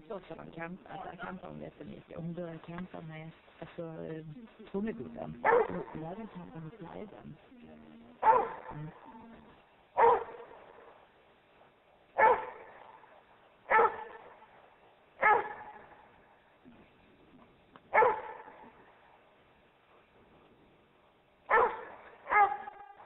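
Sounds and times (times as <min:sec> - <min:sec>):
dog barking deeply: 0:05.4 - 0:06.0, 0:08.2 - 0:09.2, 0:10.0 - 0:11.0, 0:12.2 - 0:14.5, 0:15.2 - 0:16.2, 0:17.9 - 0:19.0, 0:21.5 - 0:23.0.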